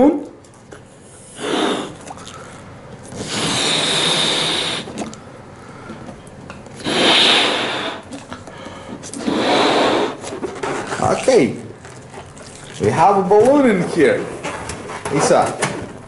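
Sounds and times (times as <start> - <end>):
balloon blown up by mouth: 1.3 - 2.1, 3.1 - 5.1, 6.8 - 8.1, 9.2 - 10.3.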